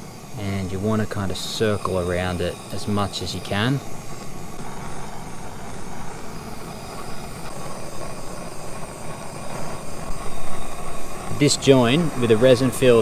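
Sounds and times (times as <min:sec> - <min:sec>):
gas torch flame burning: 0:00.0 - 0:13.0.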